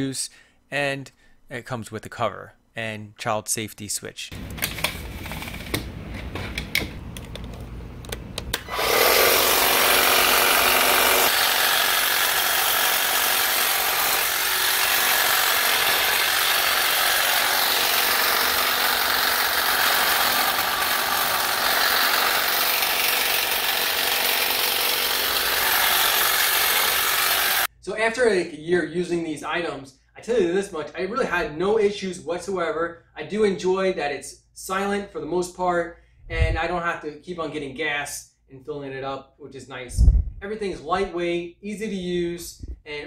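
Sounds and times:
hedge trimmer cutting shrub: 8.6 - 27.7.

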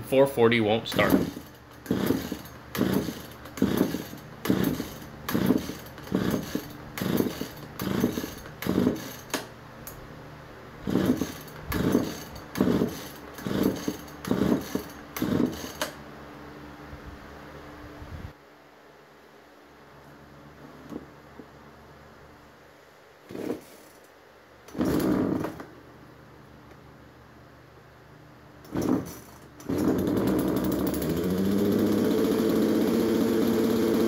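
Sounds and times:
chainsaw recoil starter pulls: 0.9 - 9.5, 10.9 - 16.0, 24.7 - 25.6, 28.6 - 34.0
engine turning over: 0.9 - 9.5, 10.8 - 16.0, 24.7 - 25.6, 28.6 - 34.0.

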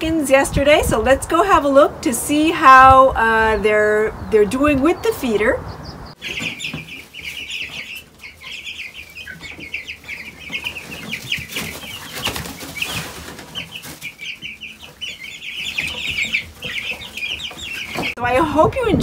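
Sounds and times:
chicks peeping: 0.2 - 19.0
rustling in wood shavings: 6.2 - 18.2.

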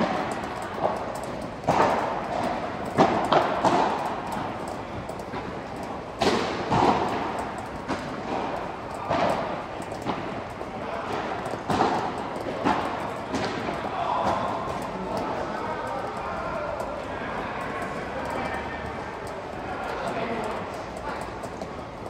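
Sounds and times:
ball bouncing on court: 0.0 - 15.4
ball hitting padel rackets: 0.0 - 18.5.

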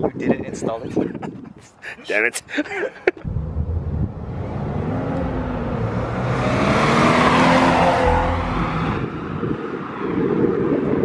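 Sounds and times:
car accelerating past: 3.3 - 9.4.

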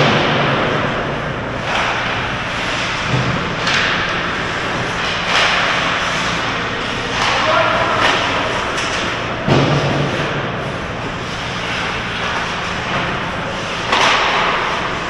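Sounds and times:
steady low hum: 0.0 - 15.0
skates scraping on ice: 1.6 - 9.2, 9.8 - 15.0.

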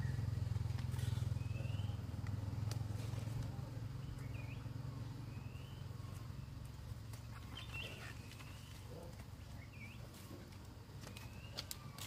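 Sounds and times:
small engine running: 0.0 - 6.5
bird chirps: 1.1 - 2.2, 3.8 - 10.4, 11.0 - 12.0.

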